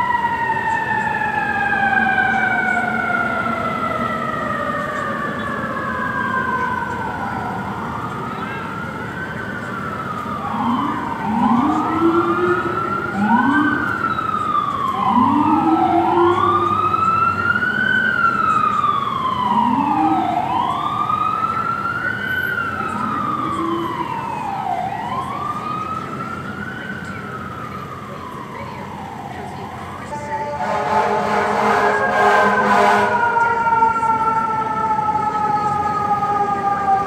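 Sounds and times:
sirens wailing: 0:00.0 - 0:37.0.

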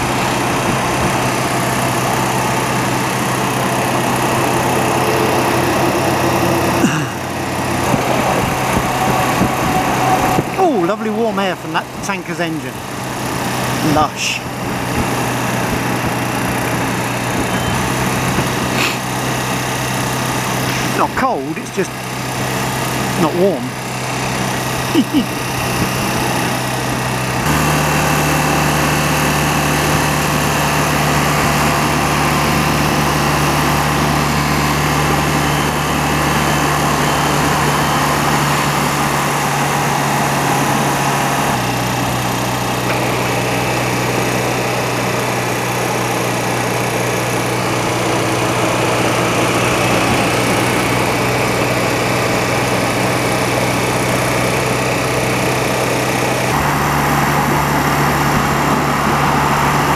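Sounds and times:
motorcycle engine cruising: 0:00.0 - 0:59.9
wind and road noise: 0:00.0 - 0:59.9.

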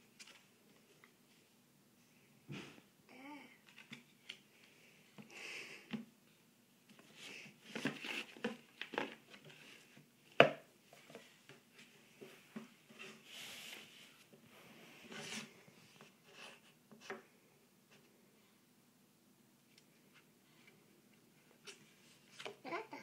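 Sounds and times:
books and box rustling: 0:06.9 - 0:17.2.

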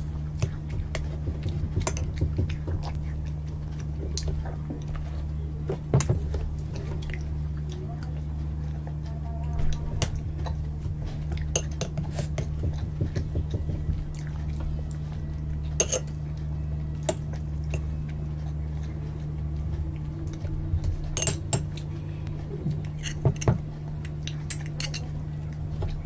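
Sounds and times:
low hum: 0:00.0 - 0:26.0
metal spoon clinking against bowl: 0:15.8 - 0:16.1, 0:21.2 - 0:21.7, 0:23.0 - 0:25.1.

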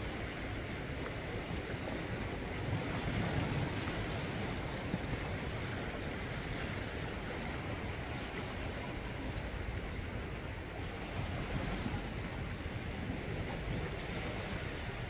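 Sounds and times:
small waves lapping on rocks: 0:00.0 - 0:15.0.

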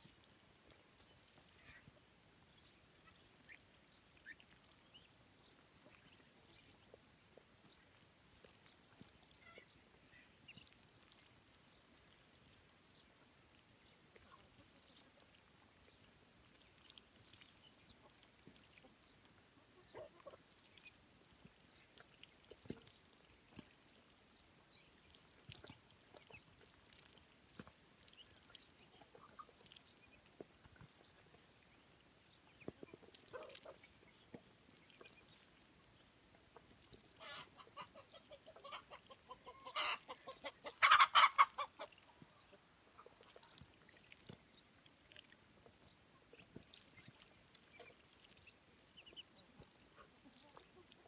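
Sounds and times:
soft duckling peeps: 0:00.0 - 0:51.0
ducklings peeping: 0:28.0 - 0:31.8, 0:36.6 - 0:51.0.

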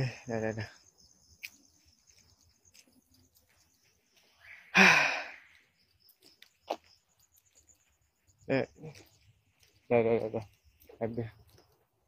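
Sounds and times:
man sighing breathily: 0:04.7 - 0:05.4.

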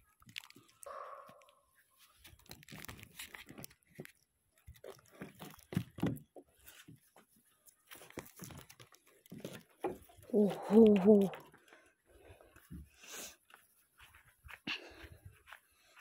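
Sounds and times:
plastic crinkling and rustling: 0:00.0 - 0:00.9, 0:01.8 - 0:11.8.

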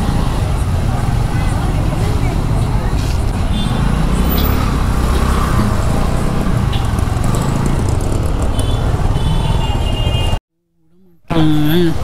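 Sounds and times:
scooter engine: 0:00.0 - 0:10.0
surrounding traffic: 0:00.0 - 0:12.0.

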